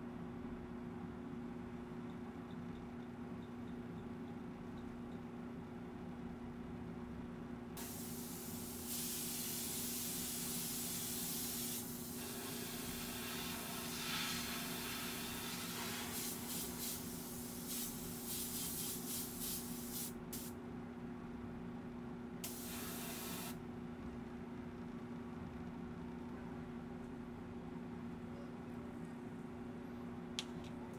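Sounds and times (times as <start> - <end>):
steady low hum: 0.0 - 30.9
airbrush spraying: 7.8 - 20.5, 22.4 - 23.6.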